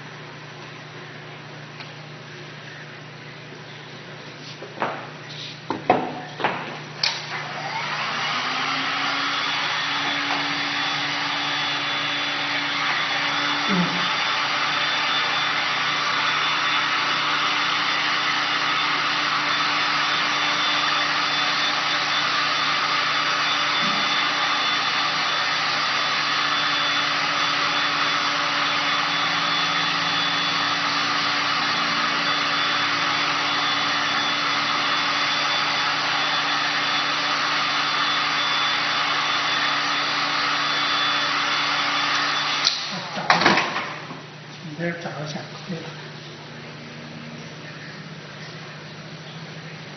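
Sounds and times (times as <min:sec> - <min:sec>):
heat gun blowing: 0:07.0 - 0:43.6.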